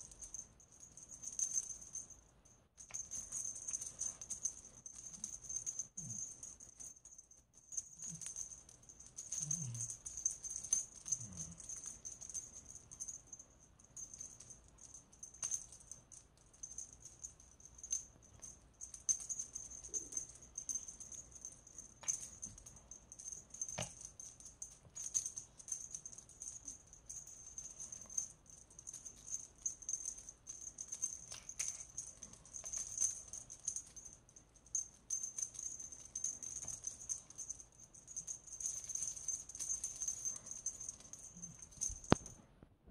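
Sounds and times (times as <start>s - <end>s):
cat toy rattling and jingling: 0.0s - 42.4s.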